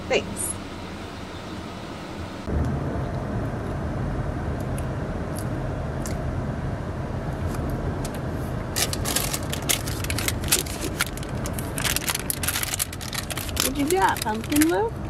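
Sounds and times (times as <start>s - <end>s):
car engine rumble inside cabin: 0.0s - 15.0s
crackling and rustling clicks: 8.8s - 15.0s.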